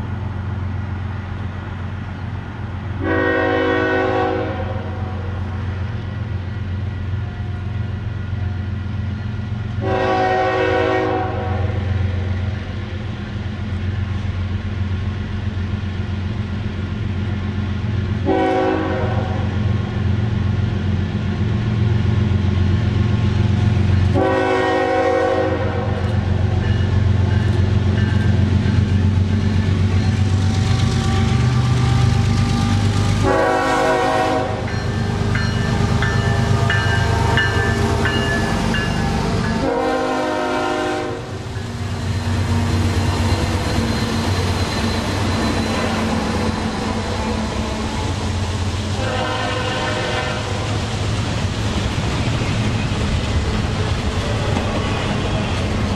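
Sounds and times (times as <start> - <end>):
locomotive air horn blasts: 3.0 - 5.0, 9.8 - 11.8, 18.2 - 19.6, 24.1 - 26.0, 32.6 - 38.2, 39.2 - 41.4, 48.9 - 50.7.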